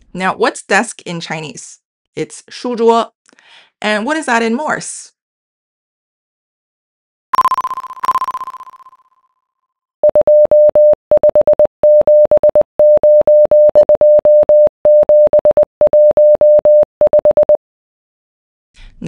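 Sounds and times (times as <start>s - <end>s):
morse code beeps: 7.4s - 9.0s, 10.0s - 17.6s
high ringing tone: 7.4s - 9.1s.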